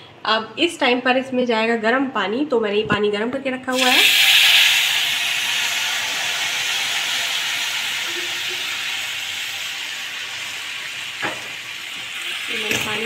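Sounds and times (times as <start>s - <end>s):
water hissing in hot fat: 3.7s - 12.6s.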